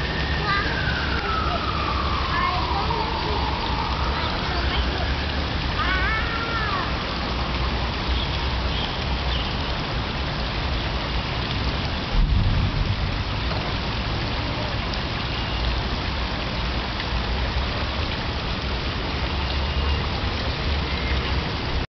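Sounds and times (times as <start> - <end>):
water spout splashing into pool: 0.0 - 21.8
wind rumble on microphone: 12.0 - 14.1.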